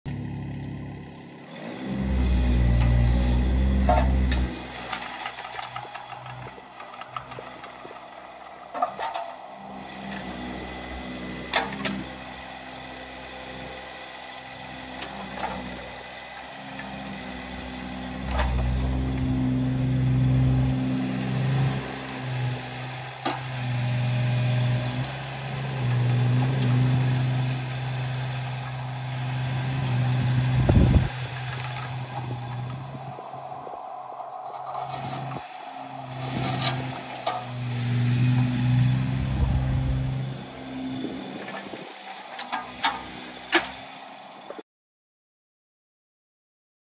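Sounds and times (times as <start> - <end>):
excavator diesel engine running: 0.1 - 44.6
hydraulics working: 21.5 - 43.8.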